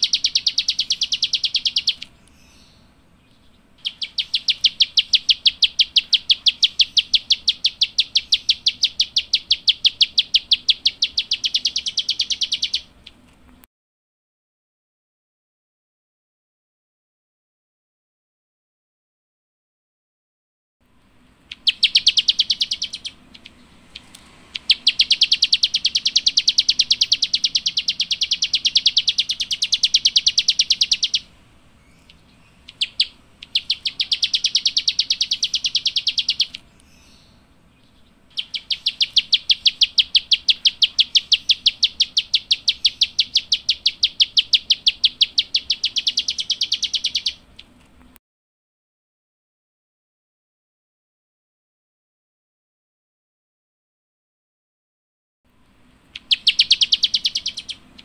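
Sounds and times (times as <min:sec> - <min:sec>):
songbird high clicking calls: 0:00.0 - 0:13.2, 0:21.4 - 0:47.8, 0:56.0 - 0:58.0.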